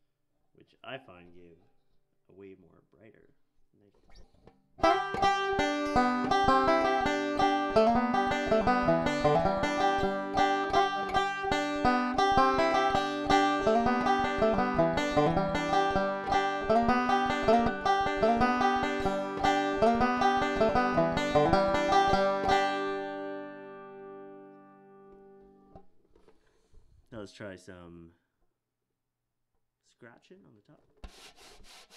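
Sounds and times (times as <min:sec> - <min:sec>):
banjo picking: 0:04.2 - 0:25.9.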